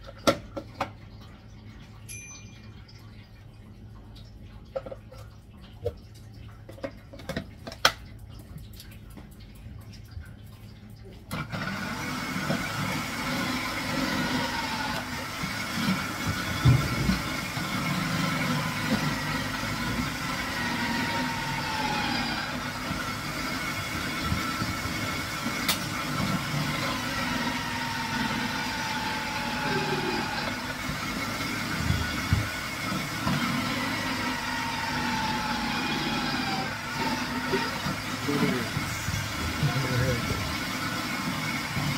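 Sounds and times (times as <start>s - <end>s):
electric grater motor whine: 11.4s - 41.9s.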